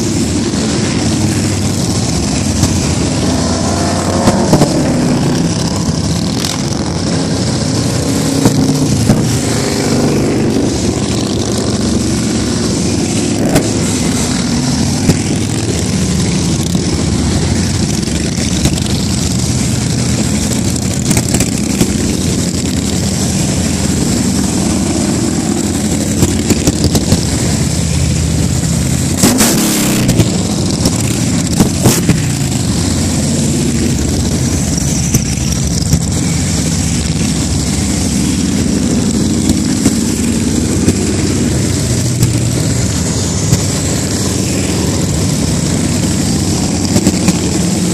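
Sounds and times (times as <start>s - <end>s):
motorcycles riding past: 0.0s - 47.9s.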